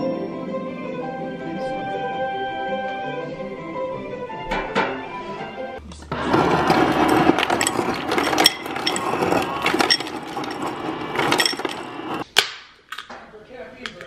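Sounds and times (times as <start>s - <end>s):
ice clattering into glass: 6.3s - 12.2s.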